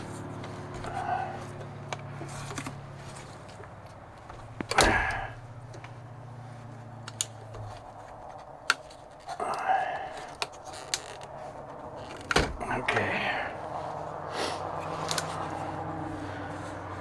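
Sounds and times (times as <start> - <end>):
man grunting: 0.9 - 1.5, 4.7 - 5.4, 12.5 - 13.7.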